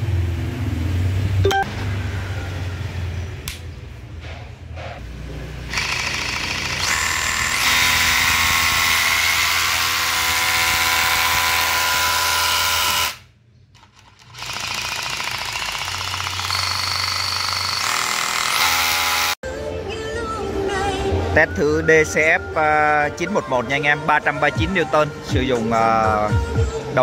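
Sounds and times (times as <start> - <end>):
rotary hammer drilling: 5.7 - 19.4.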